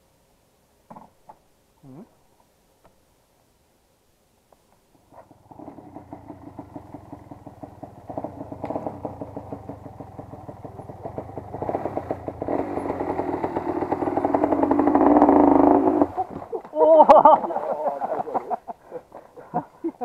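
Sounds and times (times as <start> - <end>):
dirt bike engine revving: 5.2 - 16.6.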